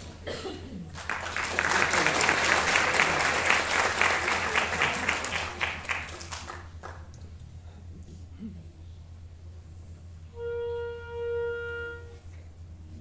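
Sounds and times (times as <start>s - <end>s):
audience applauding: 0.9s - 7.4s.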